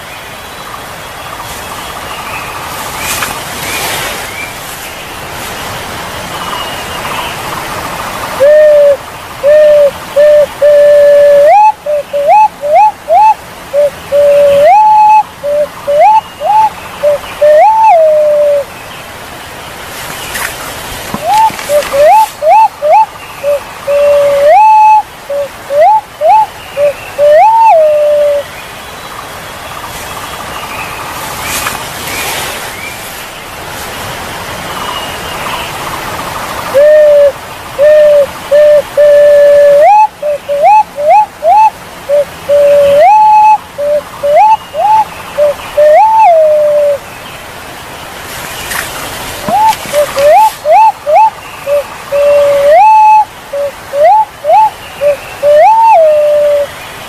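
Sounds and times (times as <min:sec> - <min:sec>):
background hiss: 0:00.0 - 0:57.0
pigeon whistled hoots: 0:08.4 - 0:18.6, 0:21.2 - 0:28.4, 0:36.8 - 0:47.0, 0:49.5 - 0:56.7.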